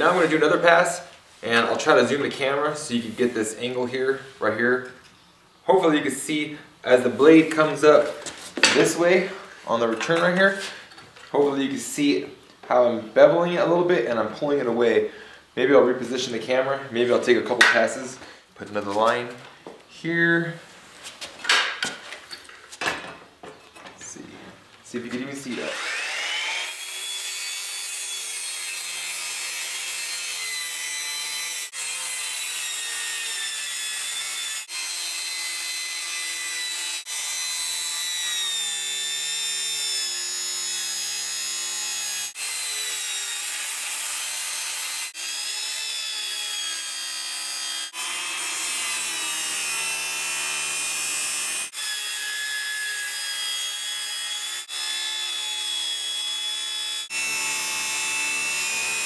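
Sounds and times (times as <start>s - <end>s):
circular saw cutting: 25.4s - 59.0s.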